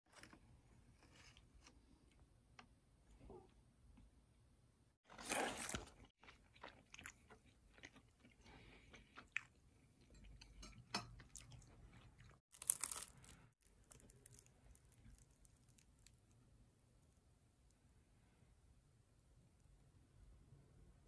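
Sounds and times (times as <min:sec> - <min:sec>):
chewing crisp food: 0:05.1 - 0:16.5
crispy wrapper crackling: 0:12.5 - 0:16.4.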